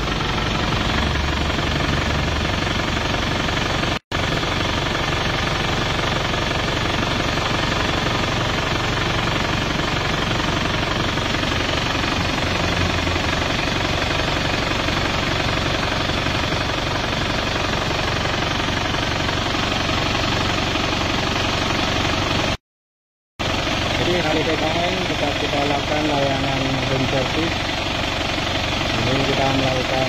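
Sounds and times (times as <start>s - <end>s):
diesel engine idling: 0.0s - 22.6s, 23.4s - 30.0s.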